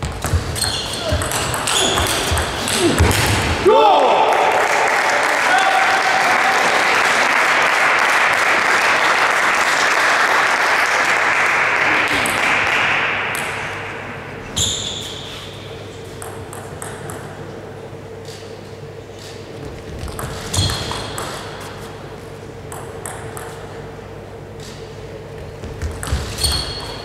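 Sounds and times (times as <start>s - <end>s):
spectators applauding: 3.9s - 13.2s
table tennis ball clicks: 22.7s - 23.6s.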